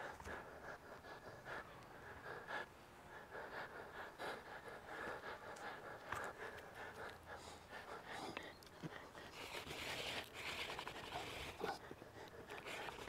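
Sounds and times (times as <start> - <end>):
man panting hard: 0.0 - 9.3.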